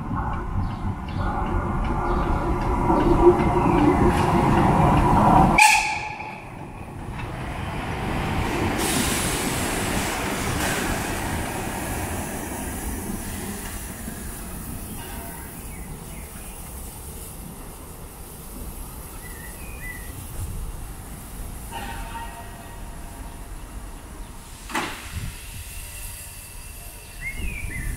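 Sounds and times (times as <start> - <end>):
steam locomotive passing: 0.0 - 27.9.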